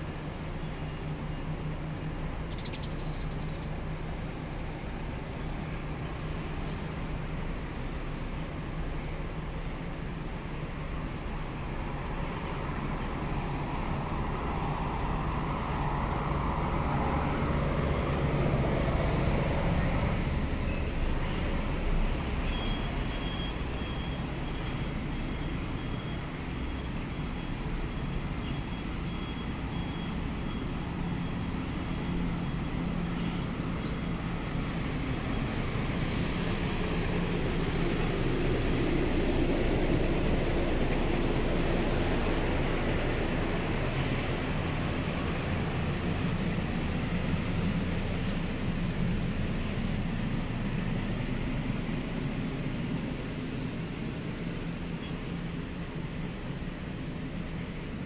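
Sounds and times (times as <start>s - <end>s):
bus engines humming: 0.0s - 58.0s
faint high-pitched beeping: 22.4s - 34.4s.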